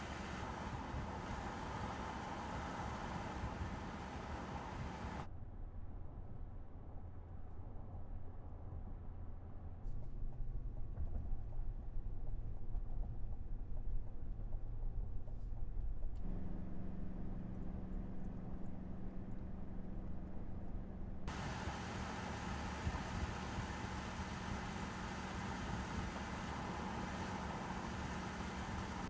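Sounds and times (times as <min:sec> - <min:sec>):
truck passing with tyre and wind noise: 0:00.0 - 0:05.3, 0:16.2 - 0:29.0
road rumble inside car cabin: 0:00.0 - 0:29.0
steady hum: 0:16.2 - 0:29.0.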